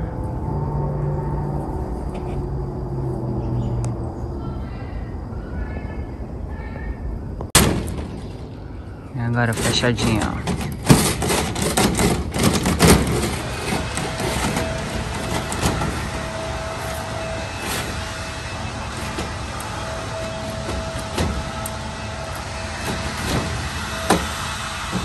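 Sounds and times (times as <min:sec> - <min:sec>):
mechanical hum with faint whine: 0:00.0 - 0:25.0
sliding door clicks and rattles: 0:09.5 - 0:16.2.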